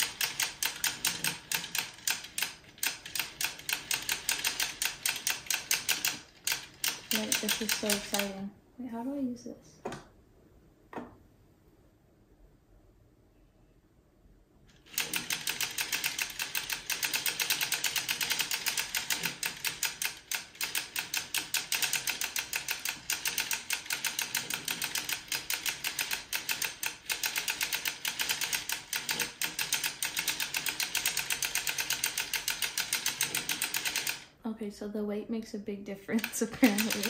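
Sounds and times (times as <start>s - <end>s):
knitting machine needles clacking: 0.0s - 8.4s, 14.7s - 34.3s, 36.1s - 37.0s.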